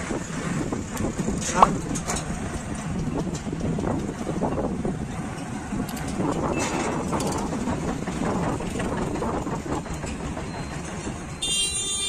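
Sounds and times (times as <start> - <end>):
road traffic noise: 0.0 - 12.0
vehicle horn honk: 11.4 - 12.0.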